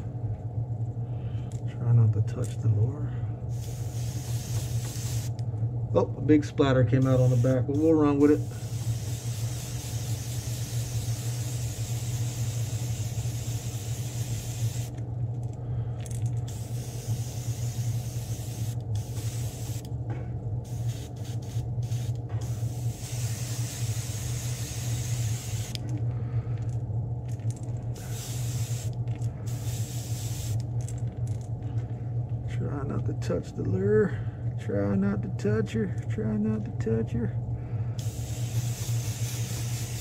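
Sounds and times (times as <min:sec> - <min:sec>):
low motor hum: 0:00.0 - 0:40.0
airbrush spraying hiss: 0:03.5 - 0:05.3, 0:07.0 - 0:14.9, 0:16.5 - 0:19.9, 0:20.6 - 0:25.8, 0:28.0 - 0:30.6, 0:38.0 - 0:40.0.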